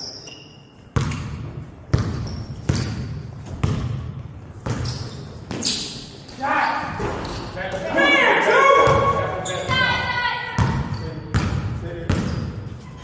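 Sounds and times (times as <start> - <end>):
sneaker squeaks: 0.0 - 3.9, 4.6 - 8.0, 8.8 - 13.0
basketball bouncing on hardwood floor: 1.0 - 4.9.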